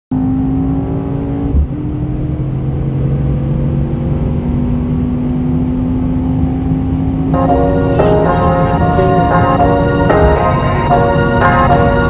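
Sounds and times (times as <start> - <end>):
car engine at full throttle: 0.1 - 8.0.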